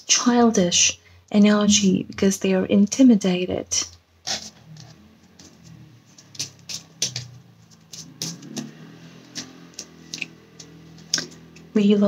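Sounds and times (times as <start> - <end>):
cards shuffling with clicks: 4.2 - 11.7.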